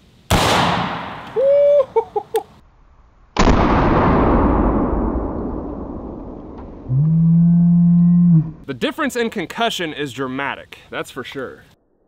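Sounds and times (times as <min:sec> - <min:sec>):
rifle shots echoing: 0:00.3 - 0:01.3.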